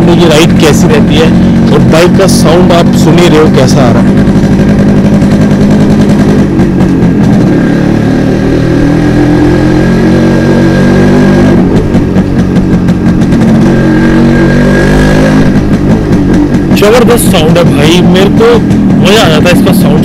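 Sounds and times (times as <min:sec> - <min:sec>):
two-stroke motorcycle engine running: 0:00.0 - 0:20.0.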